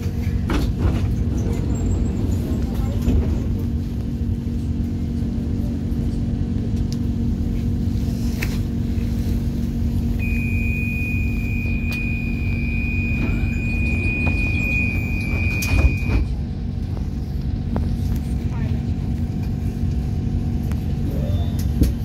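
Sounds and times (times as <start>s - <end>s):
train low hum: 0.0s - 22.0s
long high warning beep: 10.1s - 16.2s.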